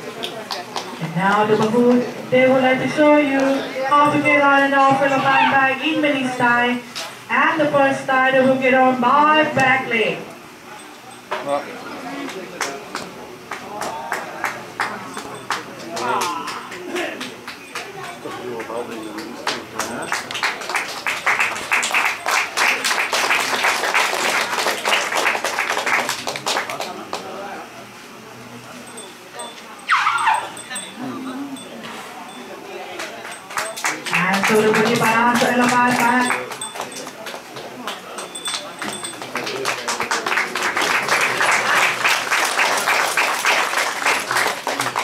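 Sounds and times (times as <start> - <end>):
audience applause: 12.3 - 27.3, 33.0 - 45.0.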